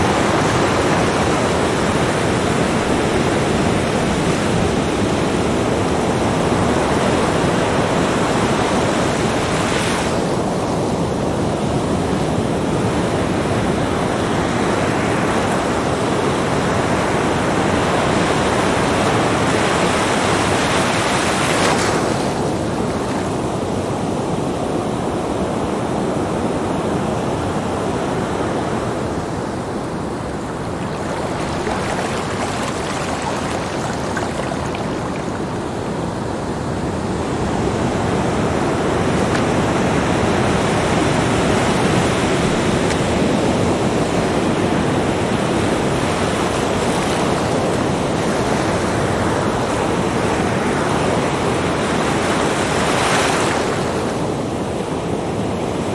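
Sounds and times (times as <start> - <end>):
small waves washing on shore: 0.0 - 25.8, 27.3 - 55.9.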